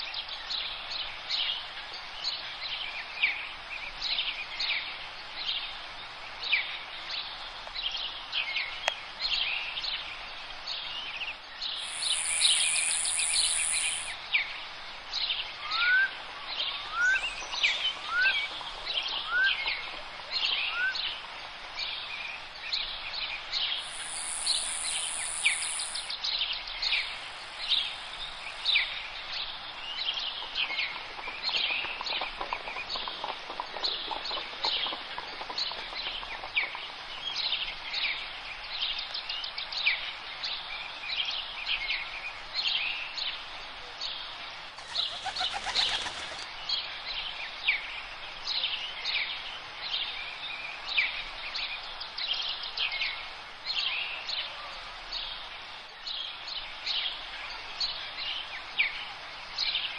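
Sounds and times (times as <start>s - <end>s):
background hiss: 0.0s - 59.9s
birds chirping: 11.8s - 14.2s, 23.7s - 29.0s
rush of noise: 11.8s - 14.2s, 23.8s - 26.2s.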